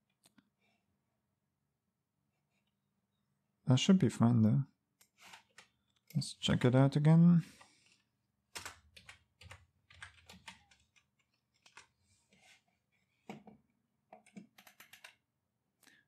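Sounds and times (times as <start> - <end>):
computer keyboard typing: 8.5 - 11.9, 14.2 - 15.2.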